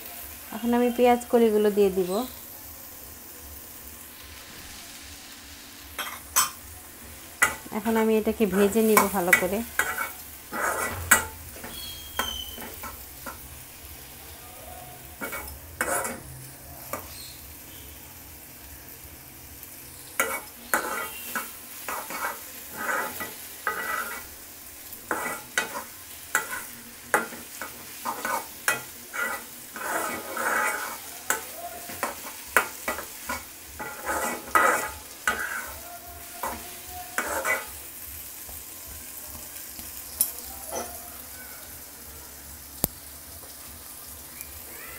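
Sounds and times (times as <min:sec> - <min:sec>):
food sizzling: 0:00.0 - 0:44.9
spatula scraping a wok: 0:05.9 - 0:06.6, 0:07.2 - 0:13.8, 0:15.1 - 0:17.7, 0:20.0 - 0:38.5, 0:39.7 - 0:41.1.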